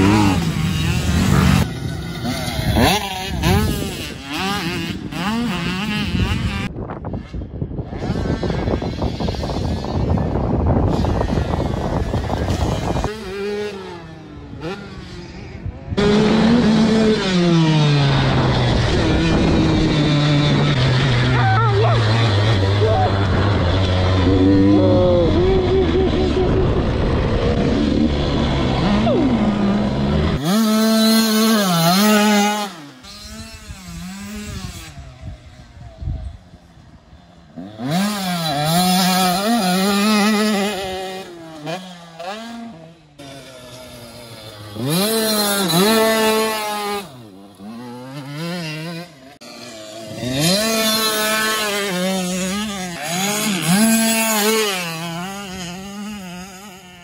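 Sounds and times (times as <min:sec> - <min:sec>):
wind on microphone: 0:00.0 - 0:14.8, 0:15.5 - 0:21.4, 0:22.2 - 0:30.4, 0:33.0 - 0:37.2
dirt bike engine revving: 0:00.0 - 0:57.0.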